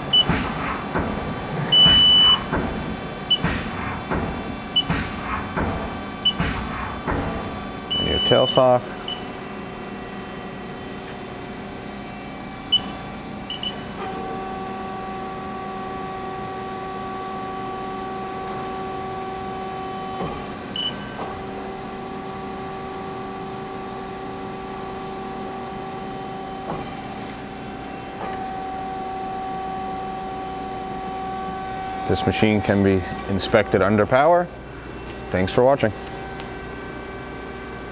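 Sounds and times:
machine background hum: 0.0 - 37.9
mechanical whine: 0.0 - 37.9
high beeps: 1.8 - 2.4, 7.9 - 9.2.

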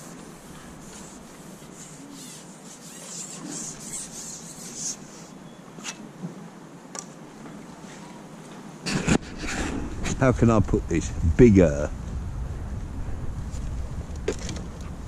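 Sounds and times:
fishing pole rubbing and scraping: 0.0 - 6.0.

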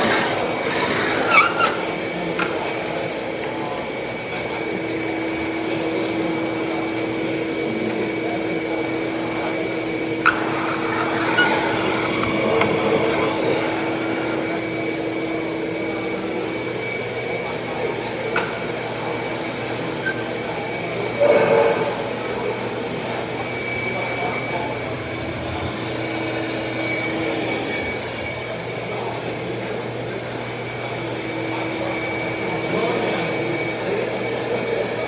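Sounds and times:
shop vacuum running: 0.0 - 35.0.

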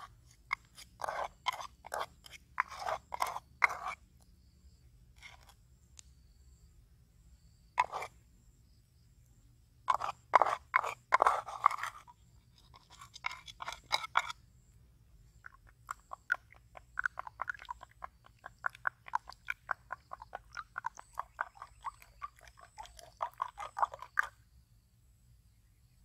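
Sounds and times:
wooden spoon scraping in bowl: 0.0 - 4.0, 7.8 - 8.2, 9.9 - 14.4, 15.5 - 24.4
spoon beating eggs: 15.9 - 24.3.

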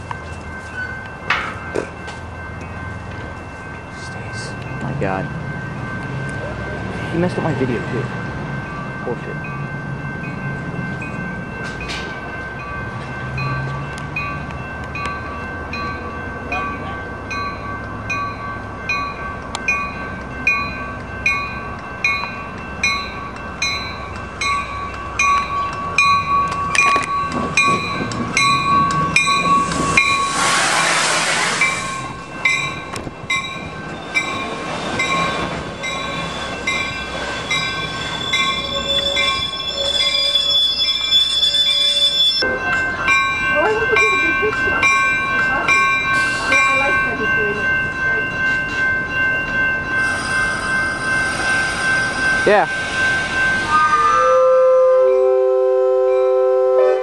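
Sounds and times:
crossing warning bells clanging: 0.0 - 57.0
train rumbling: 0.0 - 57.0
loud hiss: 29.7 - 32.1.

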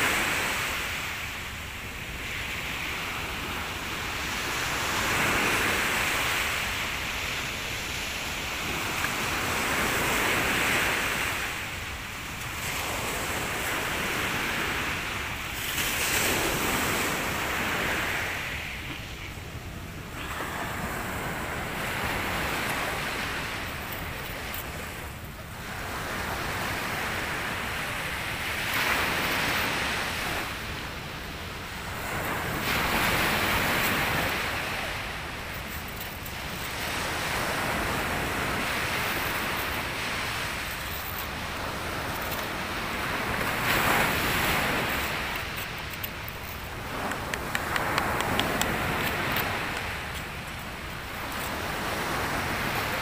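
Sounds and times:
surf breaking on beach: 36.3 - 53.0.

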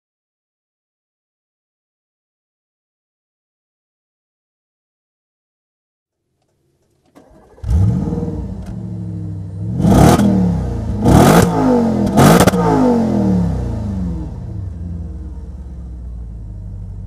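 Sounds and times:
car engine starting and idling: 6.4 - 17.0
engine revving: 7.2 - 16.0.

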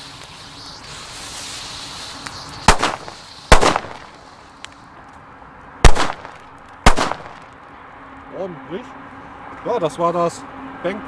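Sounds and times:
firecrackers exploding: 0.0 - 4.8, 5.8 - 7.6.

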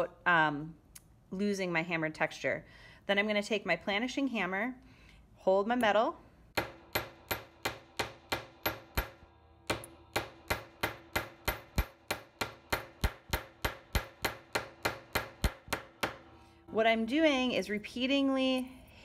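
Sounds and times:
hammer striking copper on steel: 6.5 - 16.5.

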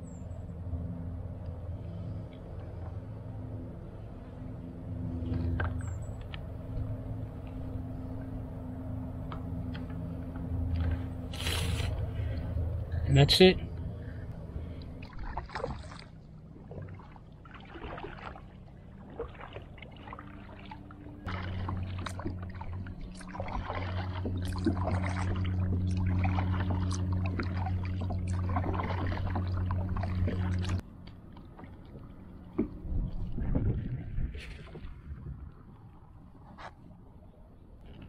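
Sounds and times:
steady low hum: 0.0 - 38.0
paddle splashing in water: 15.0 - 35.2.

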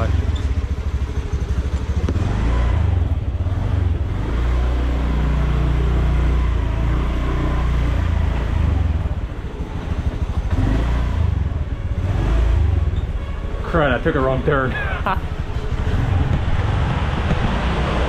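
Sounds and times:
motorbike engine running: 0.0 - 13.5, 15.2 - 18.0.

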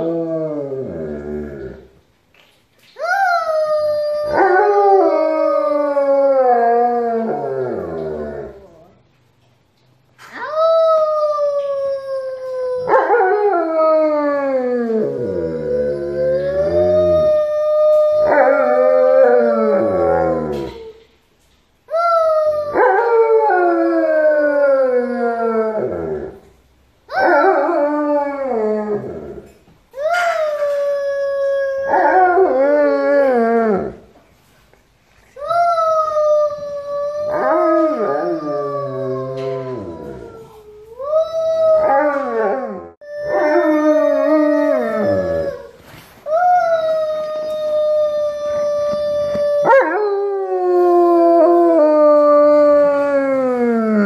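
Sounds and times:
girl howling: 3.0 - 8.8, 10.4 - 20.9, 21.9 - 26.3, 30.0 - 34.0, 35.4 - 54.0
dog howling: 3.0 - 8.9, 10.5 - 21.0, 27.1 - 34.0, 35.6 - 54.0.

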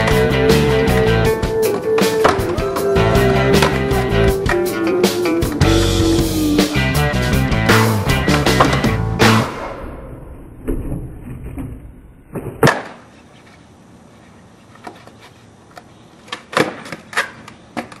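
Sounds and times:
music track: 0.0 - 10.6
skateboard clacking on concrete: 14.6 - 18.0.

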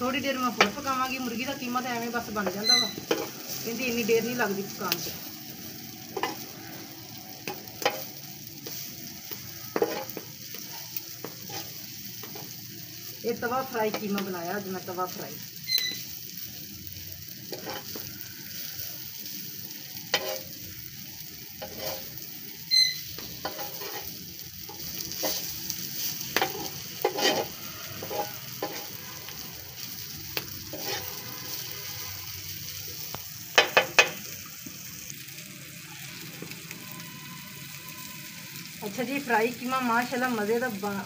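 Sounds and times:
meat sizzling on a griddle: 0.0 - 41.0
metal spatula scraping and clinking: 2.4 - 3.6, 6.1 - 6.5, 9.7 - 12.5, 17.5 - 18.1, 20.1 - 20.5, 21.6 - 22.1, 22.7 - 29.4, 30.7 - 31.7.

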